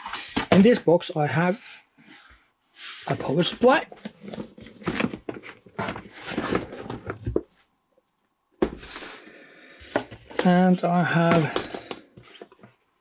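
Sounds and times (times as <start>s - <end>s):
cardboard boxes scraping and knocking: 1.5s - 7.6s
cardboard rustling: 1.5s - 7.6s.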